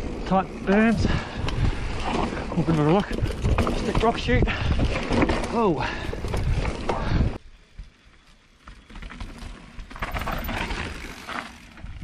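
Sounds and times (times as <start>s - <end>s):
tyre and wind noise: 0.0s - 12.0s
bike rattling over rocks: 0.6s - 7.4s, 8.5s - 12.0s.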